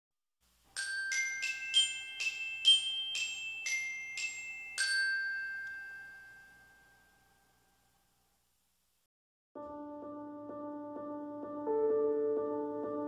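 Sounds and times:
bell-like jingle: 0:00.7 - 0:08.0.

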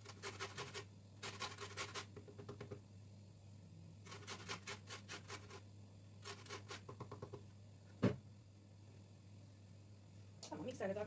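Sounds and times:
lemon scraping on metal grater: 0:00.0 - 0:02.1, 0:04.1 - 0:05.6, 0:06.2 - 0:06.9.

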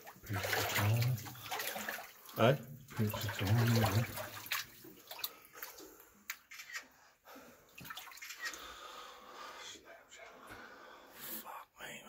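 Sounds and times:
person wading through water: 0:00.0 - 0:06.0, 0:07.7 - 0:08.6.

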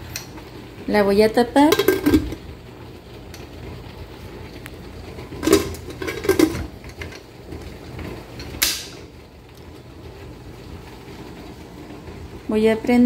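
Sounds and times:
metal lid clattering: 0:01.6 - 0:02.4, 0:05.2 - 0:07.6, 0:08.4 - 0:09.0
metal lid scraping: 0:01.7 - 0:02.4, 0:05.3 - 0:07.6.

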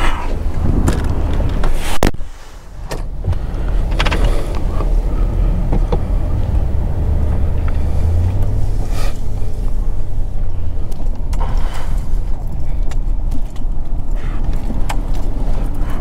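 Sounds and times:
car engine and road rumble: 0:00.0 - 0:16.0.

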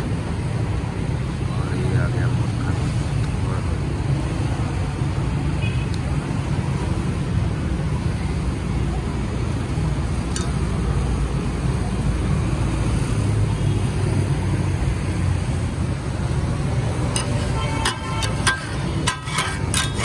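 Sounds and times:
road traffic: 0:00.0 - 0:20.0.

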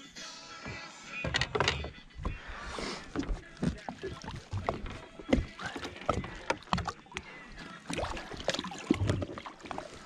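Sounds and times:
water splashing: 0:03.0 - 0:10.0.

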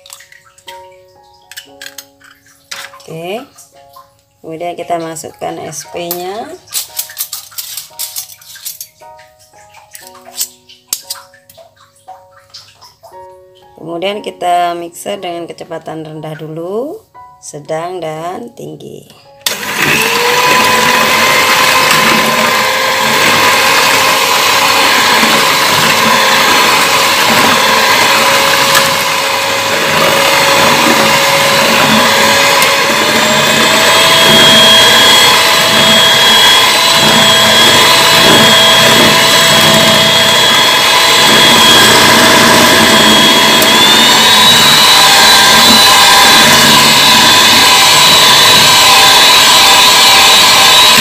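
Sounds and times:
electric mixer whirring: 0:19.4 - 0:51.0.

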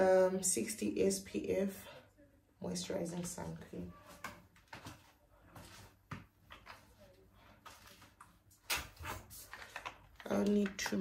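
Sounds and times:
plastic bottle clicks and rustles: 0:08.6 - 0:11.0.

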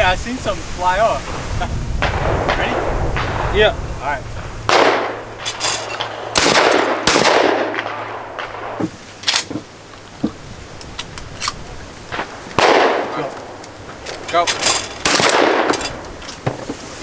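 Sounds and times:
shotgun blasts with echo: 0:01.3 - 0:08.8, 0:12.1 - 0:13.3, 0:15.0 - 0:15.8
sharp small cracks: 0:10.8 - 0:16.5.

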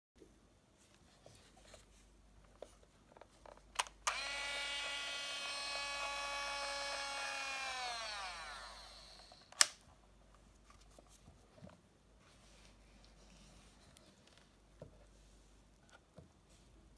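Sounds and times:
camera motor whirring: 0:04.1 - 0:09.6.

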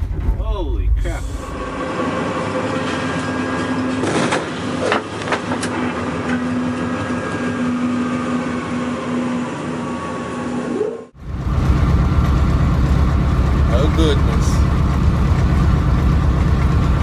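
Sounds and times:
branches striking locomotive: 0:00.0 - 0:07.6
locomotive rumbling along track: 0:00.0 - 0:17.0.

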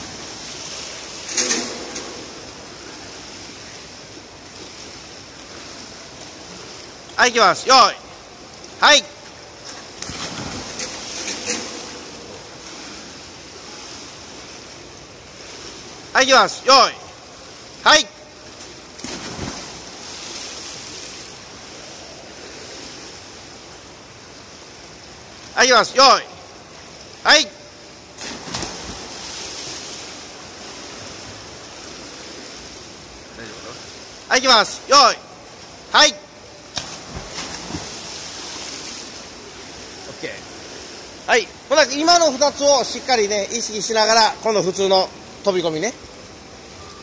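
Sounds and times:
pool water splashing from dive: 0:00.0 - 0:47.0
rippling water hiss: 0:00.0 - 0:47.0.

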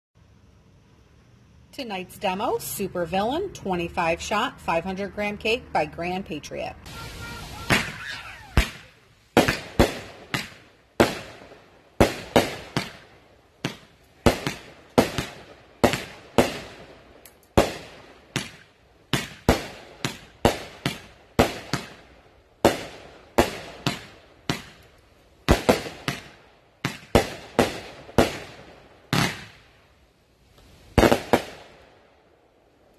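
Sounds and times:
fireworks bangs: 0:06.8 - 0:24.8, 0:25.4 - 0:29.6, 0:30.9 - 0:31.9.

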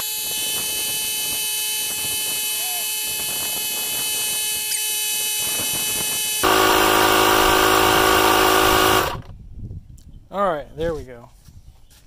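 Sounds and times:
tire inflator whining hum: 0:00.0 - 0:09.4
deep machine hum: 0:06.4 - 0:09.3.

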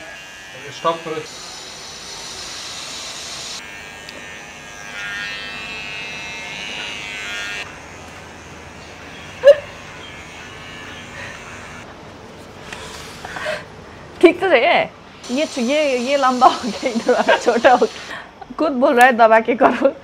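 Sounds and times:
electric hair clipper buzzing: 0:00.0 - 0:11.9, 0:15.2 - 0:18.1.

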